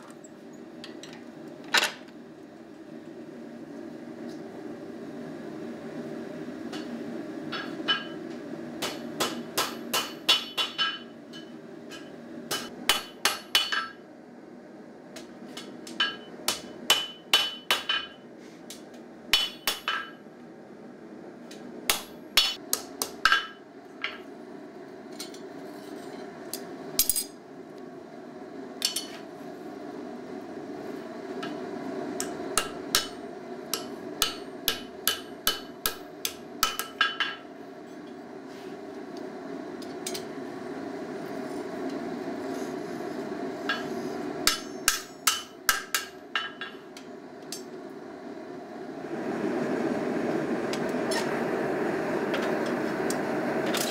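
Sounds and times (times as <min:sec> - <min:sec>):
gas forge roaring: 0:00.0 - 0:53.9
hammer striking steel on anvil: 0:07.5 - 0:08.2, 0:08.8 - 0:14.0, 0:15.9 - 0:18.2, 0:19.3 - 0:20.2, 0:21.9 - 0:24.2, 0:32.2 - 0:37.4, 0:43.7 - 0:46.8.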